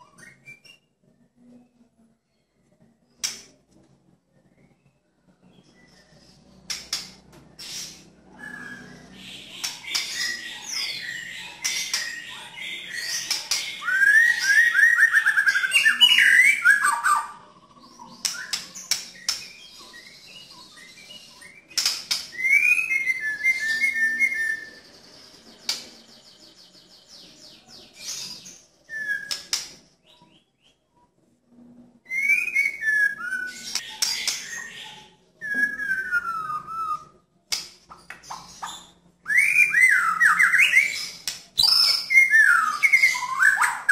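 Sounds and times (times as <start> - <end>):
bird singing whistled phrases: 8.4 - 24.9, 28.2 - 30.4, 32.1 - 37.2, 38.3 - 43.9.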